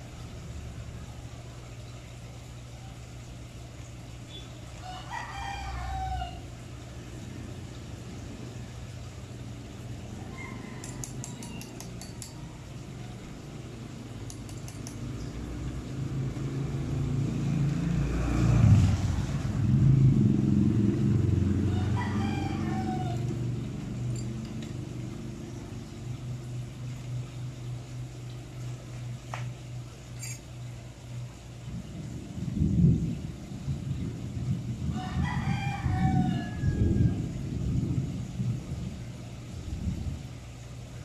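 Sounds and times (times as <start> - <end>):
rooster crowing: 4.8 - 6.6, 10.1 - 13.4, 21.4 - 23.6, 34.9 - 37.5
vehicle passing rumble: 15.0 - 28.8, 31.6 - 40.6.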